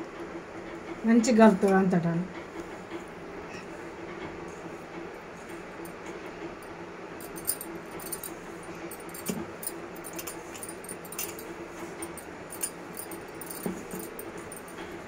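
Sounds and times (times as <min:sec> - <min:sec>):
bangles clinking: 0:07.2 - 0:15.0.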